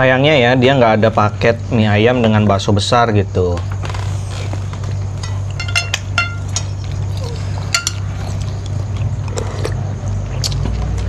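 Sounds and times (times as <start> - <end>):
steady low hum: 0.0 - 11.0
cutlery clinking on glass plates: 5.2 - 6.8, 7.7 - 8.0.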